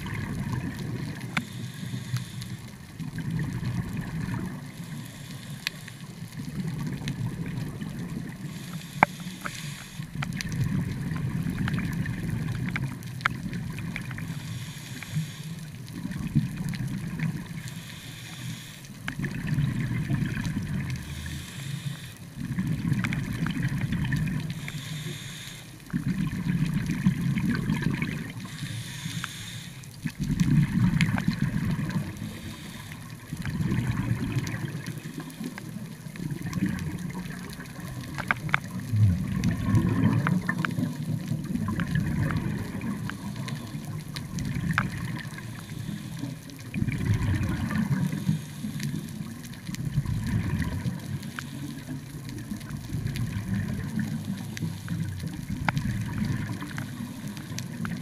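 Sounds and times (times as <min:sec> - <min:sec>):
exhaled bubbles rumbling: 0:00.0 - 0:01.4, 0:02.7 - 0:04.8, 0:06.2 - 0:08.6, 0:10.1 - 0:14.5, 0:15.7 - 0:17.7, 0:19.0 - 0:21.5, 0:22.3 - 0:24.8, 0:25.8 - 0:28.6, 0:29.9 - 0:58.0
regulator inhalation hiss: 0:01.3 - 0:02.7, 0:04.8 - 0:06.1, 0:08.4 - 0:10.1, 0:14.3 - 0:15.7, 0:17.6 - 0:18.9, 0:21.0 - 0:22.3, 0:24.5 - 0:25.8, 0:28.4 - 0:29.9, 0:32.2 - 0:33.2, 0:45.4 - 0:46.4, 0:48.1 - 0:49.1.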